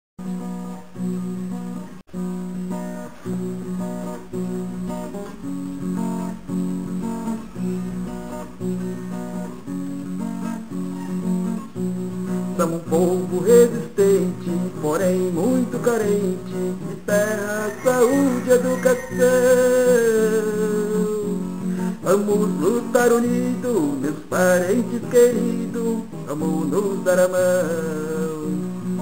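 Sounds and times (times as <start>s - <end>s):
acoustic guitar strumming: 0.2s - 29.0s
person singing: 12.5s - 29.0s.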